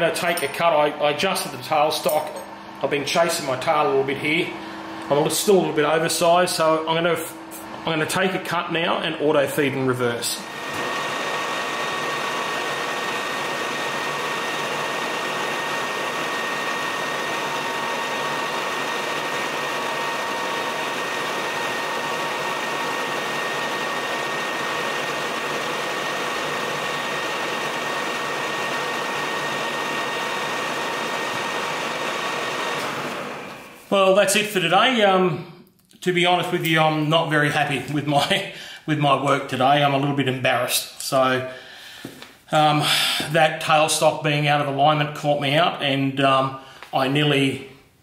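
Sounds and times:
lathe humming with thin whine: 1.6s - 9.1s, 10.4s - 33.9s.

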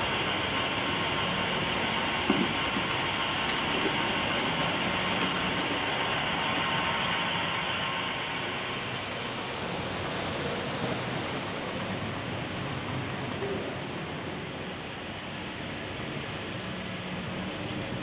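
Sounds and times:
model train rolling on track: 0.0s - 18.0s.

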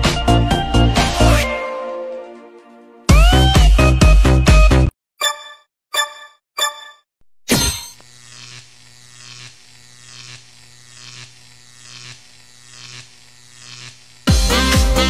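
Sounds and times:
plasma ball buzzing: 7.5s - 15.0s.

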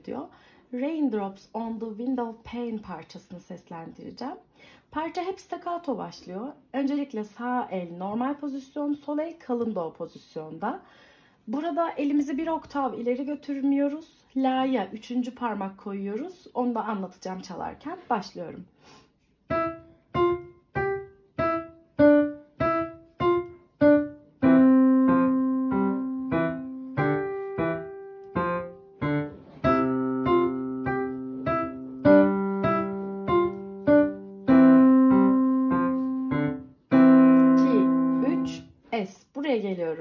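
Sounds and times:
digital piano playing: 19.5s - 38.6s.

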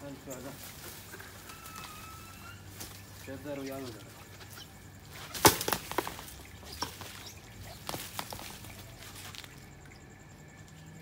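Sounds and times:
leaves rustling: 0.0s - 10.0s
sharp cracks and knocks: 5.2s - 9.6s.

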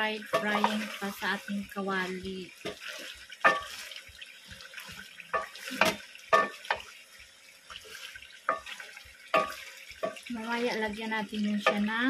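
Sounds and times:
curry sizzling: 0.0s - 12.0s
ladle knocking against metal pot: 2.6s - 3.8s, 5.3s - 6.9s, 8.5s - 10.2s, 11.6s - 12.0s.

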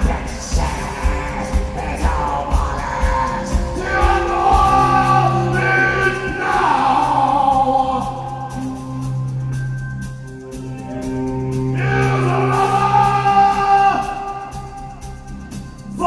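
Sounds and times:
man singing long wavering notes: 0.0s - 9.0s, 11.7s - 15.2s
band playing live: 0.0s - 16.0s.

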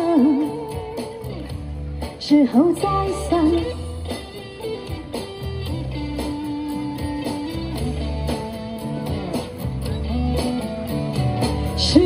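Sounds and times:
guitar-led pop ballad over speaker: 0.0s - 12.0s.

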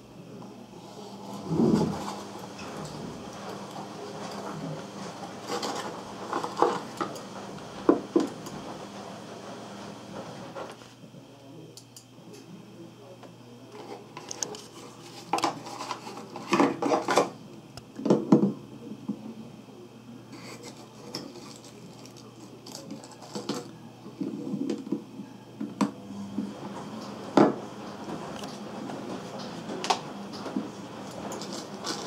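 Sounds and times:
small hard objects clattering: 21.2s - 23.7s.

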